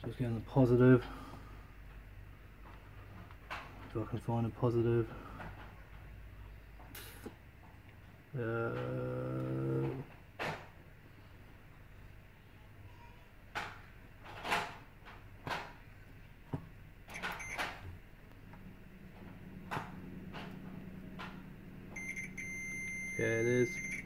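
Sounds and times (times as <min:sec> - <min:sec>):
high continuity beep: 0:17.2 - 0:17.6, 0:22.0 - 0:24.0.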